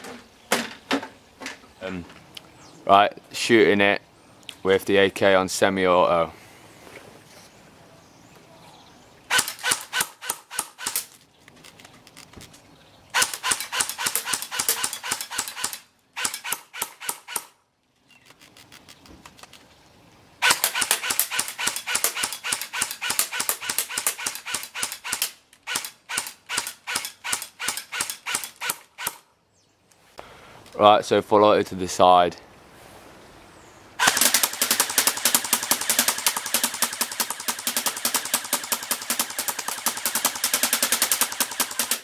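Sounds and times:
airsoft rifle shots snapping: 9.3 - 11.1, 13.2 - 17.6, 20.4 - 29.2, 34.0 - 42.0.

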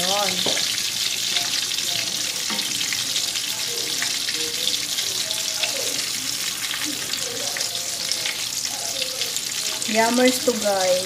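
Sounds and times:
chicken frying in oil: 0.0 - 11.0.

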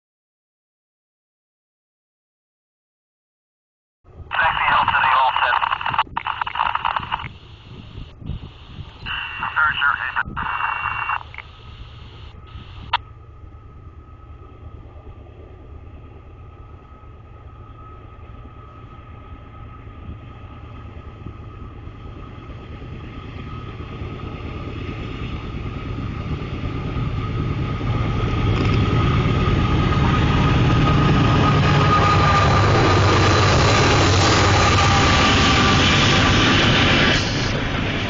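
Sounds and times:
steady high whine: 4.3 - 15.2
diesel locomotive engines rumbling: 5.8 - 38.0.

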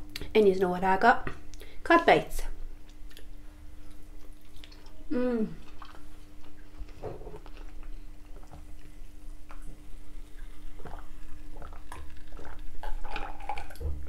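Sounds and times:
chewing: 2.8 - 14.0
gulping a drink: 9.5 - 14.0.

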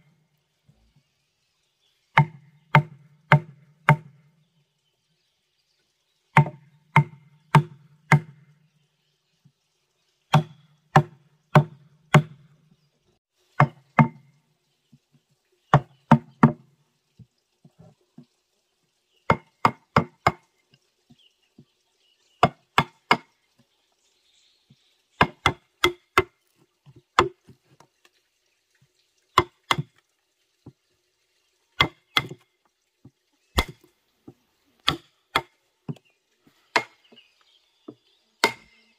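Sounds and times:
wooden mallet striking chisel: 34.8 - 36.0, 36.7 - 37.0, 38.4 - 38.7.

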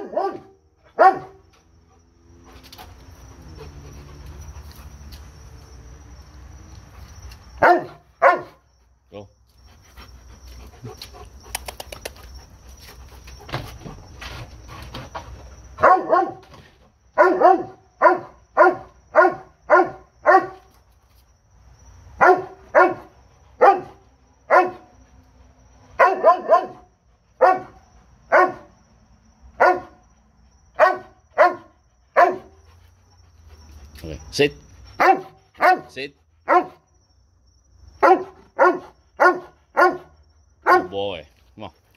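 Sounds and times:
dog barking sharply: 0.0 - 1.4, 7.6 - 8.6, 15.8 - 16.4, 17.2 - 20.6, 22.2 - 24.9, 26.0 - 28.7, 29.6 - 30.0, 30.8 - 32.5, 35.0 - 35.9, 36.5 - 36.8, 38.0 - 40.9
low rustling and scuffling: 12.4 - 17.0.

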